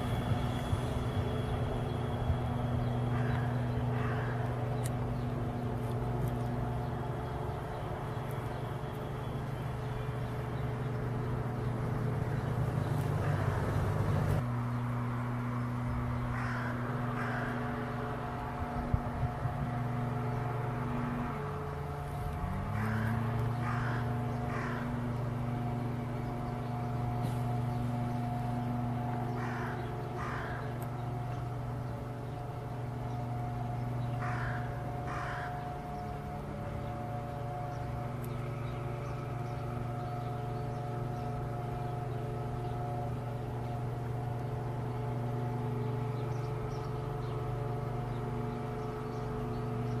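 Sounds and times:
bird harsh calls: 0.0 - 14.4, 16.0 - 17.9, 21.6 - 43.9
steady low hum: 0.0 - 50.0.

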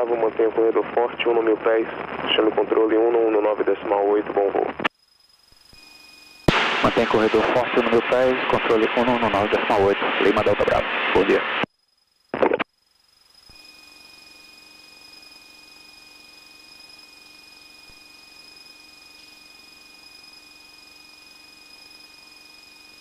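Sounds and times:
high-pitched electrical whine: 0.0 - 23.0
intercom hiss: 6.5 - 11.7
clipped voice: 6.8 - 11.5.

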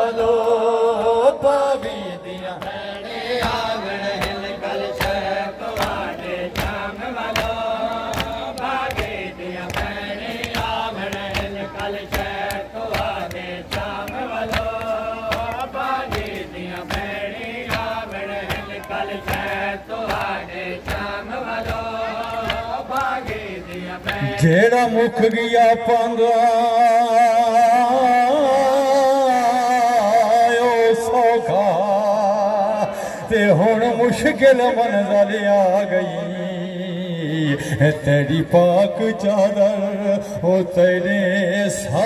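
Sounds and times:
person chanting a lament: 0.0 - 42.0
hands slapping chests: 3.4 - 24.3.

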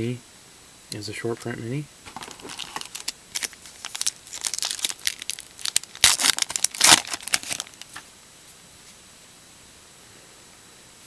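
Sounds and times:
wrapper crinkling and tearing: 2.1 - 8.0.

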